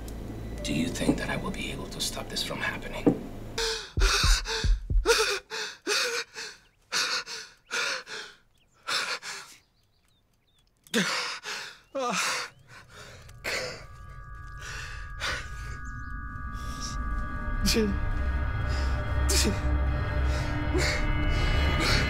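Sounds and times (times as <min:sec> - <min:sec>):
man gasping and breathing hard: 0:03.6 - 0:09.6
man moaning: 0:11.9 - 0:12.5.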